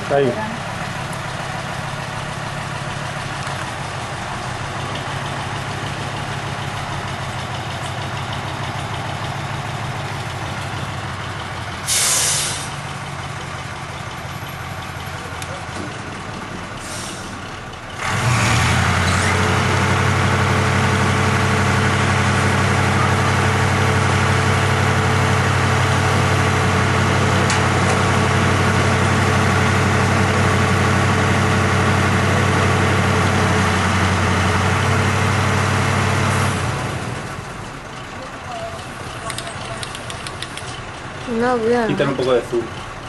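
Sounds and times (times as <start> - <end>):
diesel engine running: 0.0 - 43.0.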